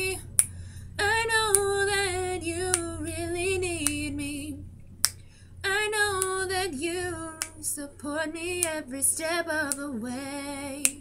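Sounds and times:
woman singing unaccompanied: 0:00.0 - 0:04.7, 0:05.6 - 0:11.0
faint low hum: 0:00.0 - 0:11.0
sharp clicks: 0:01.3 - 0:04.3, 0:06.1 - 0:06.5.

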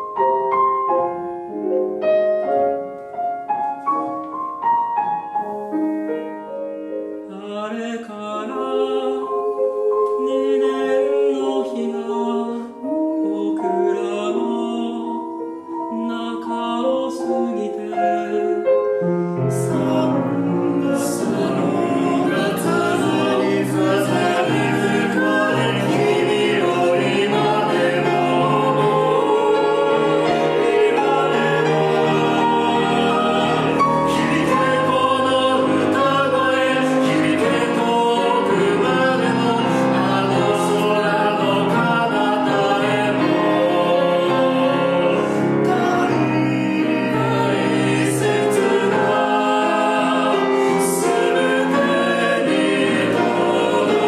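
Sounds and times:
piano: 0:00.0 - 0:54.0
mixed chorus singing: 0:08.2 - 0:15.3, 0:19.5 - 0:54.0.

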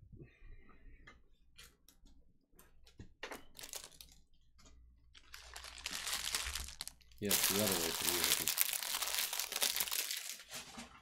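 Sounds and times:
pack wrappers rustling: 0:03.6 - 0:04.2, 0:05.1 - 0:10.7.

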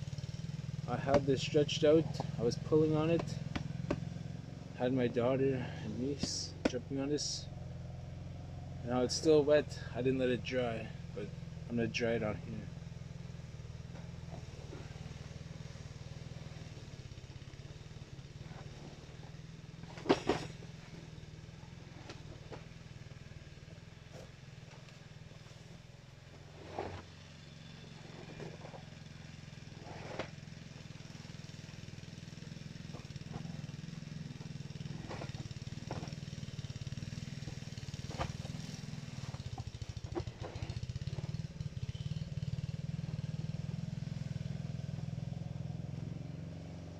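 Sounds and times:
low mechanical hum: 0:00.0 - 0:46.9
wet hide knocking and rustling: 0:19.9 - 0:20.6.

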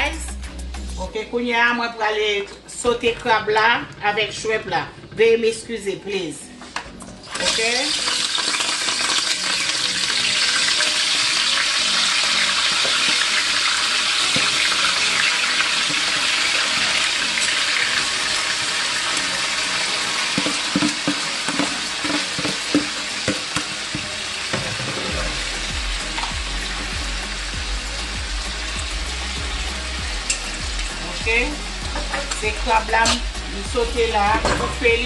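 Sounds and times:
seafood sizzling in hot oil: 0:07.2 - 0:34.2.

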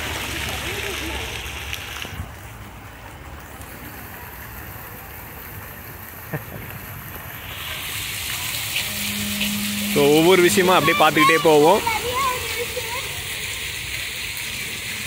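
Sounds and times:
fountain water splashing: 0:00.0 - 0:15.0.

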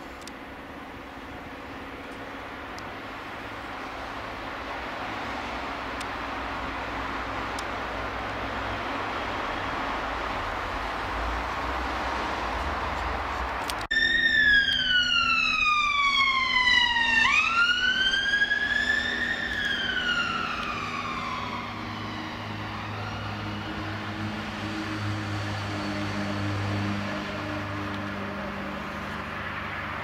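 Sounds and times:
emergency siren wailing: 0:13.8 - 0:30.0.

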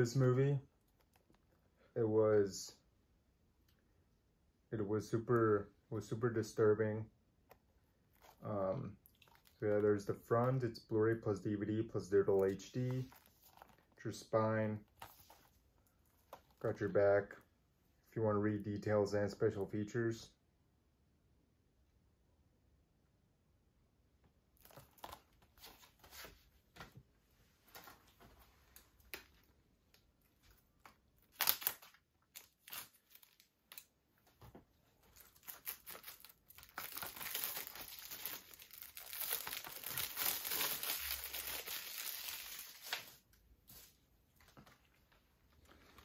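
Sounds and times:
plastic wrap crackling and crinkling: 0:00.8 - 0:01.6, 0:08.0 - 0:10.6, 0:12.2 - 0:16.9, 0:24.5 - 0:26.4, 0:27.6 - 0:46.0.

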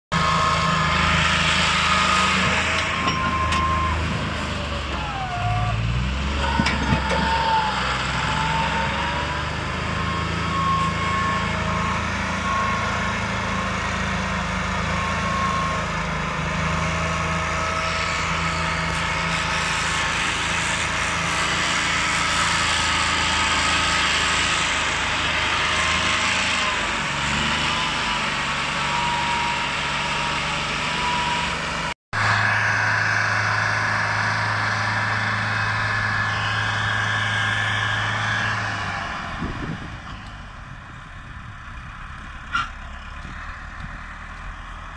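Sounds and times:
tractor diesel engine under load: 0:00.1 - 0:44.9.

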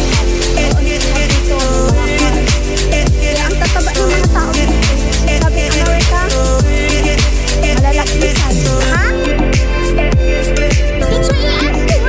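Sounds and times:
deep falling bass hits: 0:00.0 - 0:09.0
background music with steady beat: 0:00.0 - 0:12.0.

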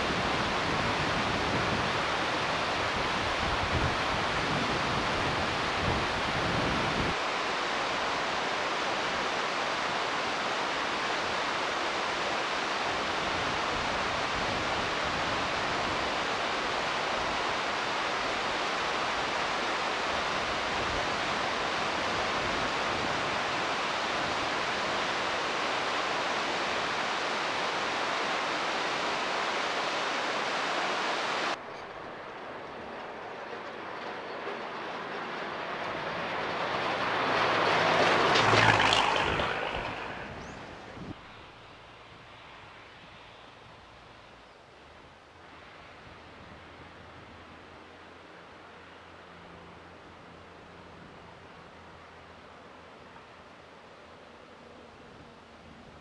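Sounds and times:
rocky river rushing: 0:00.0 - 0:31.6, 0:35.8 - 0:41.2
quiet outdoor background: 0:07.0 - 0:56.0.

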